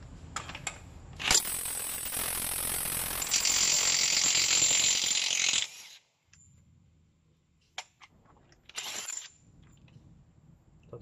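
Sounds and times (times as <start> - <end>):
impact wrench rattling: 8.7 - 9.3.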